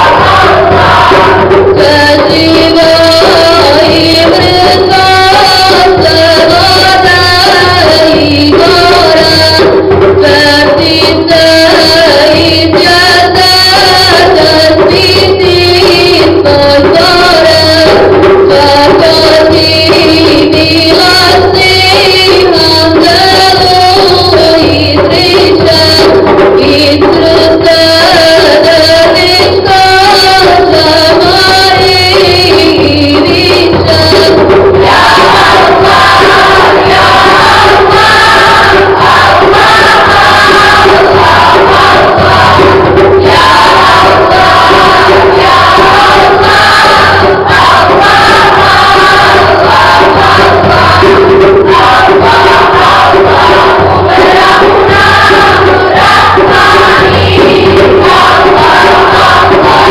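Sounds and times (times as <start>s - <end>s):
mixed choir singing a hymn: 0.0s - 1.6s, 33.4s - 59.9s.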